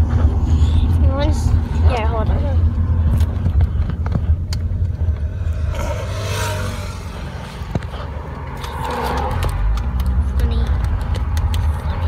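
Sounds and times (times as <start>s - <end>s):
car low rumble: 0.0s - 12.0s.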